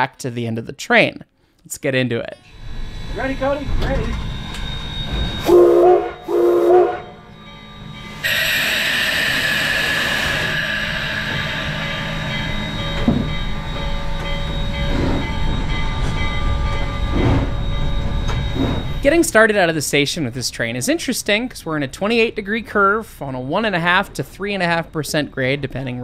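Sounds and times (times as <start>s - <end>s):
steam whistle blasts: 3.5s - 14.2s
loud steady hiss of steam: 8.2s - 13.7s.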